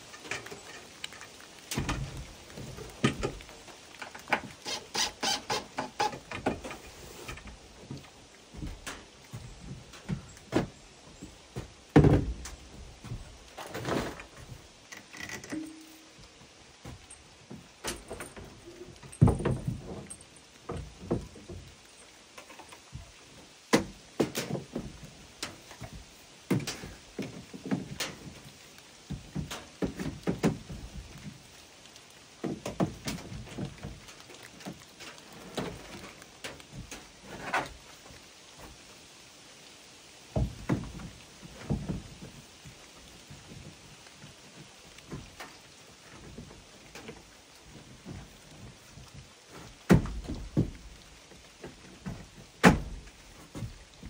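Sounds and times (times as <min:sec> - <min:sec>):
objects knocking and thudding: 0:00.0 - 0:03.5, 0:11.6 - 0:14.6, 0:16.8 - 0:21.7, 0:40.3 - 0:42.4, 0:49.5 - 0:50.8
faint steady hiss: 0:00.0 - 0:54.0.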